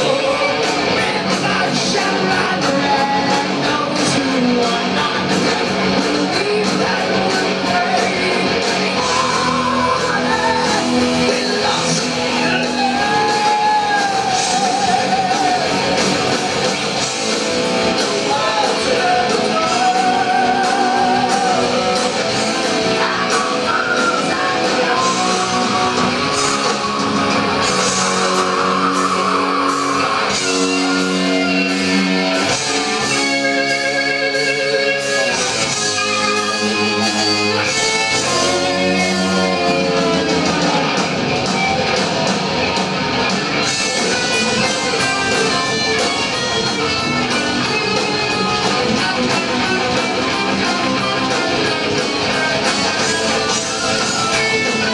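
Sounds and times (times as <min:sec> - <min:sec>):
person singing: 0:00.0 - 0:16.2, 0:18.0 - 0:22.2, 0:22.8 - 0:41.0
heavy metal band playing: 0:00.0 - 0:54.9.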